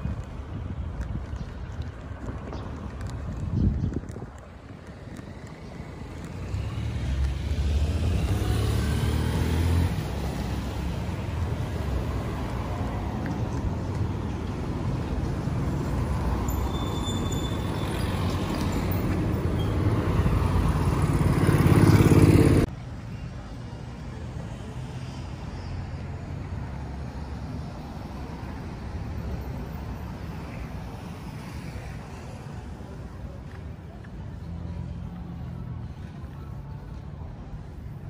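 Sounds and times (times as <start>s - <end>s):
street sound: 0.0s - 38.0s.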